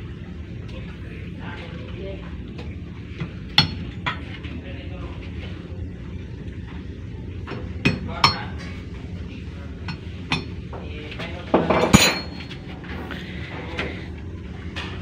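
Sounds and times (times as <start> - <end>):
steady low hum: 0.0 - 15.0
hammer striking steel punch: 11.8 - 12.4.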